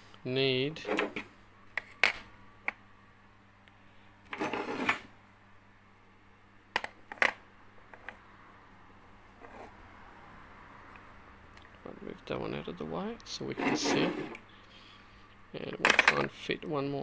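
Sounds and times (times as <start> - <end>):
clattering scrape: 0.8 - 2.2, 4.3 - 5.1, 9.4 - 9.7, 13.5 - 14.4.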